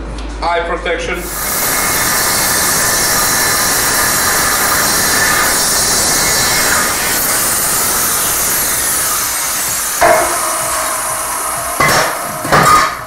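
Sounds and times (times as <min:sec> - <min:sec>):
angle grinder cutting steel: 0:01.2 - 0:13.0
metal tube clanging on bench: 0:11.8 - 0:13.0.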